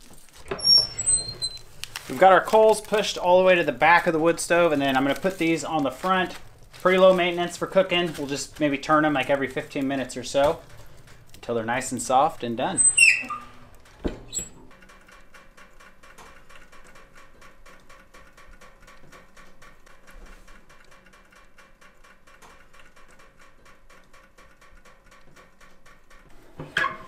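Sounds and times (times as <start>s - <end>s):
wood stove door clunking shut: 13.4s - 14.7s.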